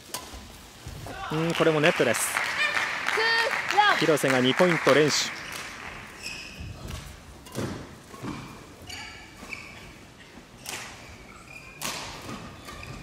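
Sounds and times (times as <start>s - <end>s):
shoe squeaks on court floor: 5.4s - 7.6s, 8.2s - 13.0s.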